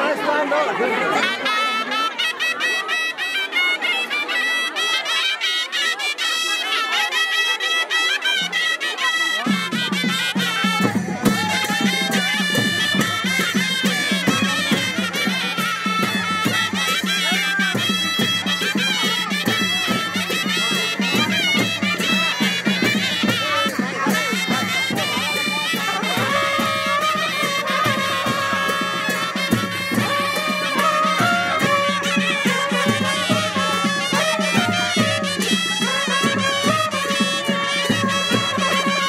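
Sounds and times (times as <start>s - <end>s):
brass trumpets playing melody: 1.1s - 39.0s
percussive beats: 9.7s - 39.0s.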